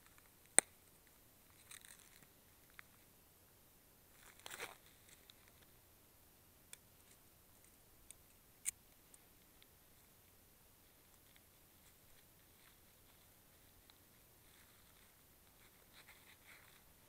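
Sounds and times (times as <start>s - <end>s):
faint sharp clicks: 6.7s - 9.8s
short rustle: 10.9s - 17.0s.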